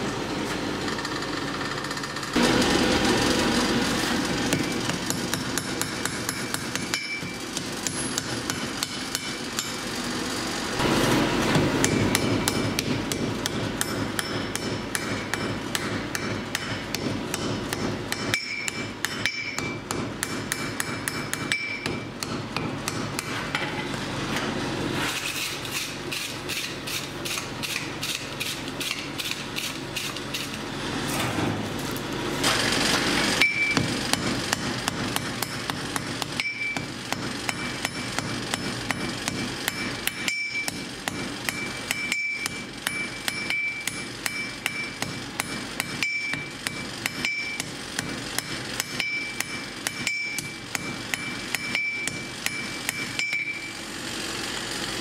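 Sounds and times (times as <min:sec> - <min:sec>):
hammer striking steel on anvil: 0:04.1 - 0:10.0, 0:11.4 - 0:23.9, 0:33.4 - 0:53.8.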